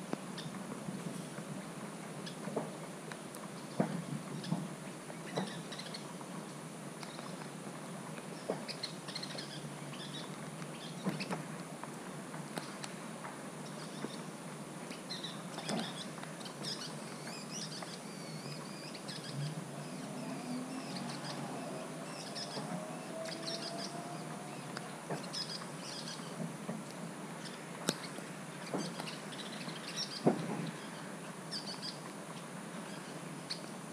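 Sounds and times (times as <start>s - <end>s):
light rain hiss: 0.0s - 33.9s
birds chirping: 14.9s - 26.4s.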